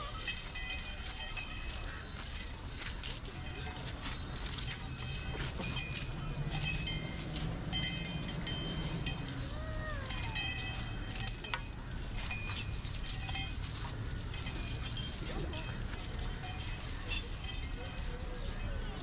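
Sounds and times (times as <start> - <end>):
metal chains clinking and jangling: 0.0 - 19.0
elephant call rising and falling: 8.3 - 11.0.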